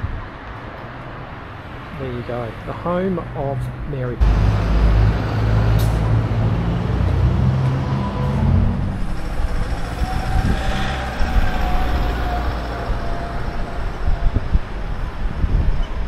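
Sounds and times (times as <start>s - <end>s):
vehicle engine rumbling: 3.8s - 16.0s.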